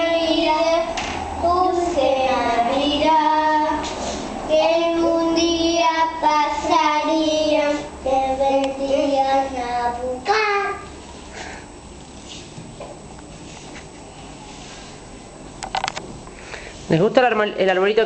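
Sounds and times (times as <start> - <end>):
child singing: 0.0 - 3.8, 4.5 - 10.9.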